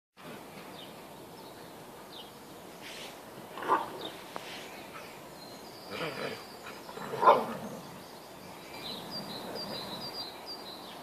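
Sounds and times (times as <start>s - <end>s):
faint bird chirps: 3.8s - 11.0s
dog barking: 7.2s - 7.5s.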